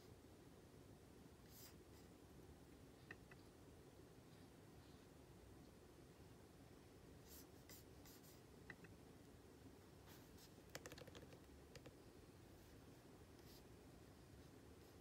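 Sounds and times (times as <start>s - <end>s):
computer keyboard clicks: 10.7s - 12.0s.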